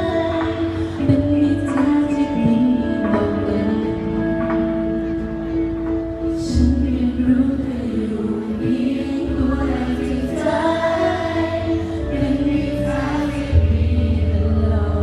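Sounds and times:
woman singing lead: 0.0s - 15.0s
youth choir singing: 7.2s - 15.0s.

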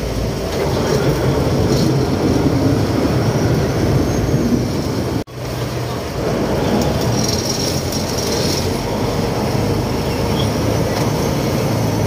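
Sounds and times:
boat diesel engine drone: 0.0s - 12.0s
rushing water: 0.0s - 12.0s
wind: 0.0s - 12.0s.

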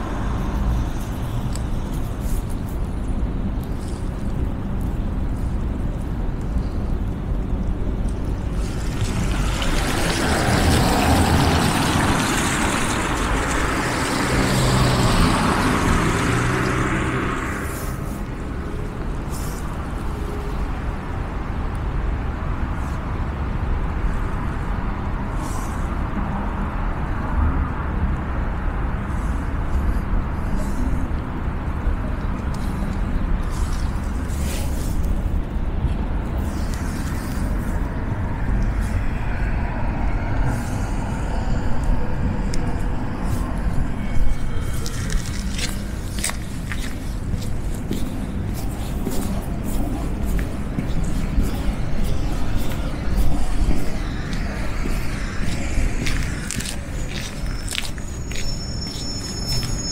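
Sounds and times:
low rumble of traffic: 0.0s - 59.9s
vehicle passing close by: 8.6s - 18.7s, 37.1s - 58.5s.

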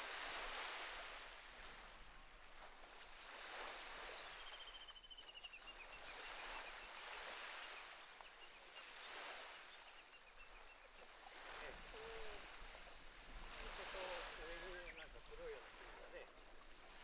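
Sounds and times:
small waves on rocky shore: 0.0s - 17.0s.

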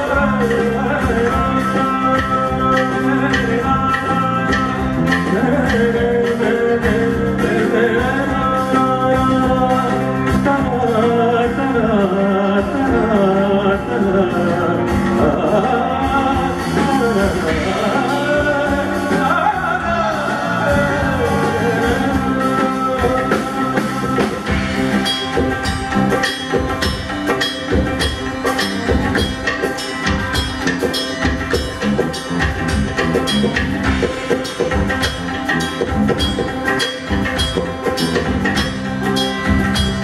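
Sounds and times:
man singing: 0.0s - 27.1s
electric bass guitar: 0.0s - 40.0s
percussion: 0.0s - 40.0s.

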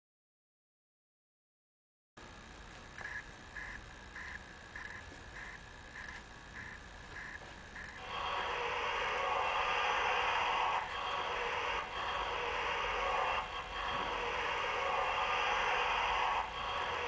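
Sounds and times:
model locomotive hiss: 5.4s - 17.0s.

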